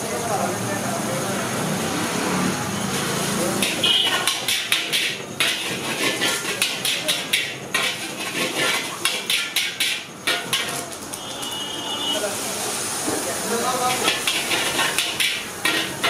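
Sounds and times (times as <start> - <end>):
food sizzling: 1.0 - 16.0
metal spatula scraping a wok: 2.9 - 11.0, 13.8 - 16.0.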